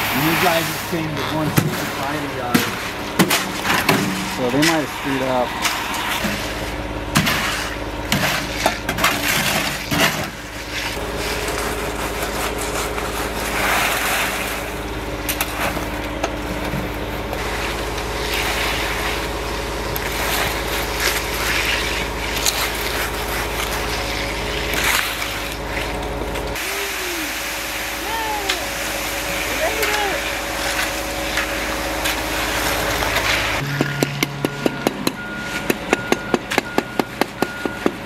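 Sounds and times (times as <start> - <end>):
shovels and rakes scraping concrete: 0.0 - 16.1, 17.4 - 36.0
concrete dumped from wheelbarrow: 5.6 - 14.8.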